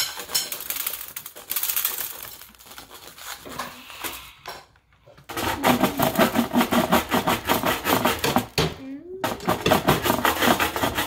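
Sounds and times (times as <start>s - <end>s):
dry husk tearing and rustling: 0.1s - 3.6s.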